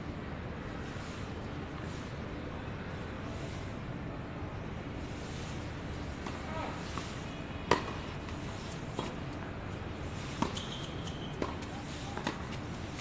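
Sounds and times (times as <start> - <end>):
tennis racket hitting ball: 7.7 - 8.0, 10.2 - 13.0
tennis ball bouncing: 7.7 - 9.2, 10.2 - 13.0.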